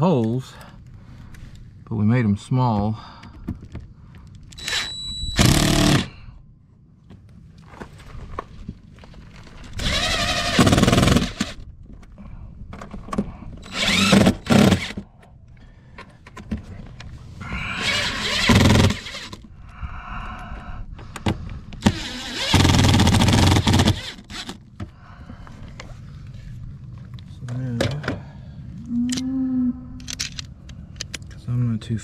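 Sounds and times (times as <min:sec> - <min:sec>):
impact driver driving screws: 0:04.6 - 0:06.1, 0:09.8 - 0:11.6, 0:13.6 - 0:15.0, 0:17.8 - 0:19.4, 0:21.8 - 0:24.6.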